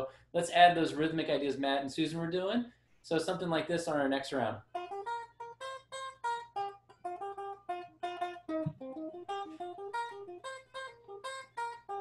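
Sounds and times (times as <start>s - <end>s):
guitar plucked melody: 4.6s - 12.0s.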